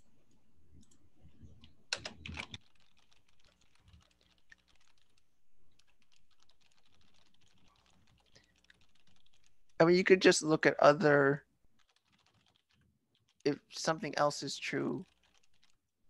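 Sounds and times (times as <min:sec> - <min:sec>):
typing on computer keyboard: 0:00.8 - 0:09.8, 0:11.8 - 0:13.4, 0:15.0 - 0:15.9.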